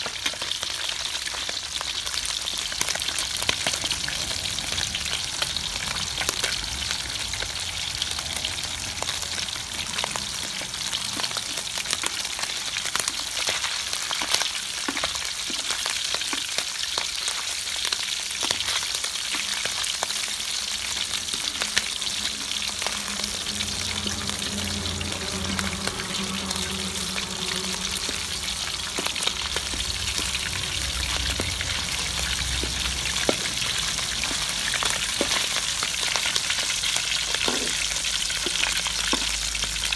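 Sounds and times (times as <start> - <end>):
fish deep-frying in oil: 0.0 - 39.9.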